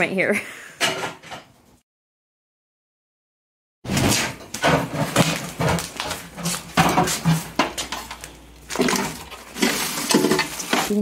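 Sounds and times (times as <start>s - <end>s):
items knocking and clattering: 0.8s - 1.6s, 3.9s - 11.0s.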